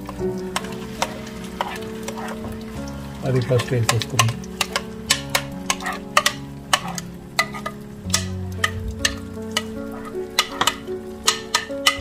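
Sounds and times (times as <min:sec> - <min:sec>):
oil sizzling: 0:00.0 - 0:12.0
spoon knocking against bowl: 0:03.8 - 0:12.0.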